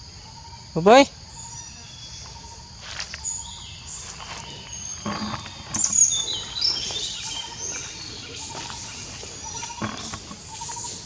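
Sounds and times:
birds chirping: 0:00.0 - 0:11.0
footsteps on dry leaves: 0:02.2 - 0:09.9.

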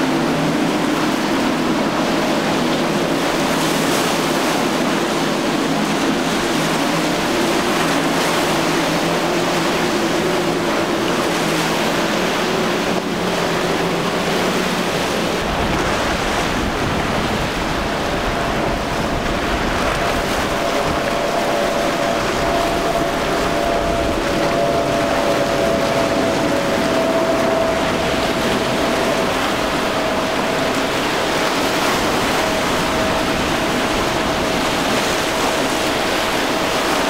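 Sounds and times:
higher outboard engine tone: 0:00.0 - 0:37.0
outboard engine drone: 0:00.0 - 0:37.0
rushing spray and wave wash: 0:00.0 - 0:37.0
wind noise on microphone: 0:00.0 - 0:37.0
heavy low rumble: 0:15.4 - 0:36.3.

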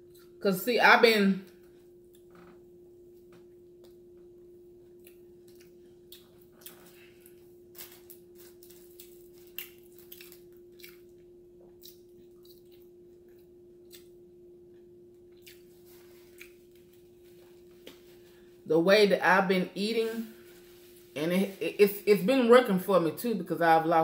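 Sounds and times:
steady low hum: 0:00.0 - 0:24.0
person chewing: 0:04.9 - 0:14.3, 0:15.2 - 0:18.0.

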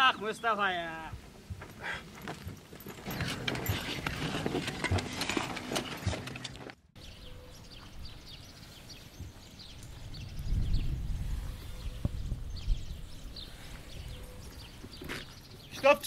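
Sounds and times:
donkey hooves on stony ground: 0:01.0 - 0:10.5
footsteps on stony dirt: 0:01.1 - 0:06.8.

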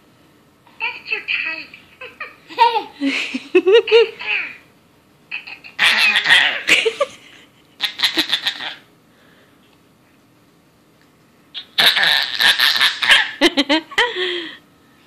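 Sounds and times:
high-pitched giggling: 0:02.0 - 0:04.5, 0:05.3 - 0:08.8.

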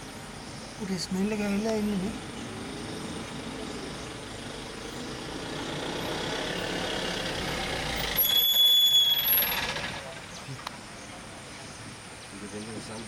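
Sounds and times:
vehicle engine running: 0:01.2 - 0:10.8
loud high-pitched squeal: 0:08.0 - 0:10.1.

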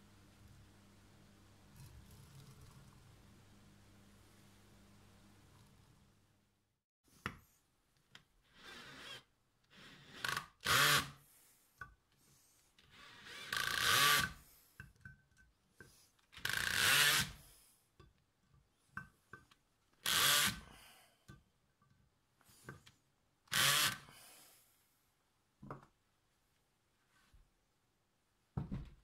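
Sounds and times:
cordless drill drilling into metal: 0:08.6 - 0:11.1, 0:13.0 - 0:14.4, 0:16.4 - 0:17.4, 0:20.0 - 0:20.6, 0:23.5 - 0:24.0.

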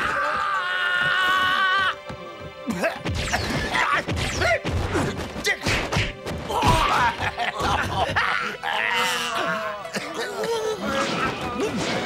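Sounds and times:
background music: 0:00.0 - 0:12.0
punches and whacks: 0:03.0 - 0:07.1, 0:10.8 - 0:12.0.

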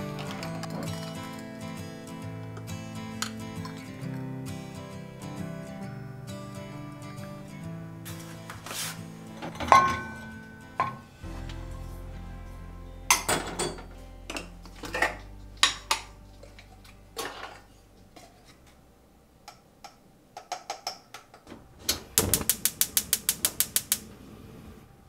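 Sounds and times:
gas stove igniter clicks: 0:21.9 - 0:24.1.

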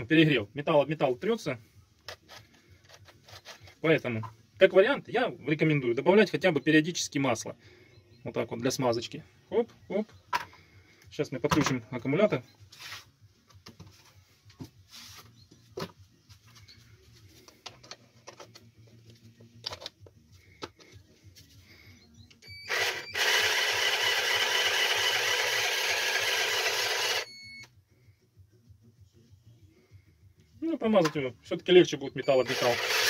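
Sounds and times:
electric chainsaw running: 0:22.7 - 0:27.3, 0:32.4 - 0:33.0.

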